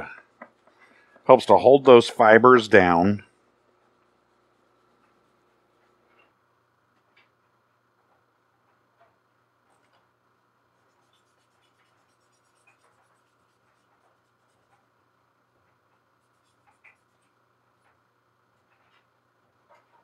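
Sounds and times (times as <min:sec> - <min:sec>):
faint steady hum: 0:00.0 - 0:20.0
scratchy rubbing of leather edge: 0:10.8 - 0:15.0.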